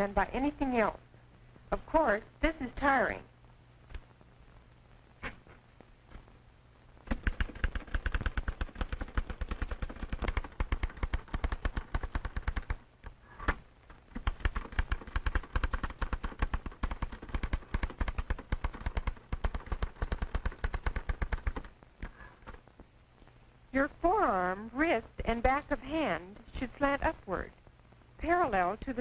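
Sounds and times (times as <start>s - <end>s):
typewriter typing rapidly: 7.1s - 12.8s, 14.2s - 21.7s.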